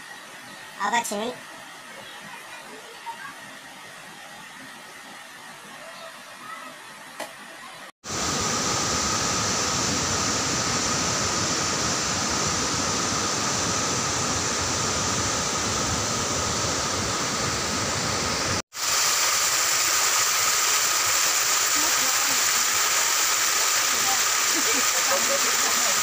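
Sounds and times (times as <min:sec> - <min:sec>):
waterfall rushing over rocks: 0:08.1 - 0:26.0.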